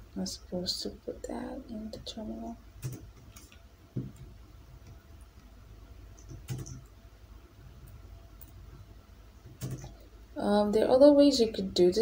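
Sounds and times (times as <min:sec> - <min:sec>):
computer keyboard keystrokes: 0:02.8 - 0:04.3, 0:06.2 - 0:06.9, 0:09.5 - 0:10.0.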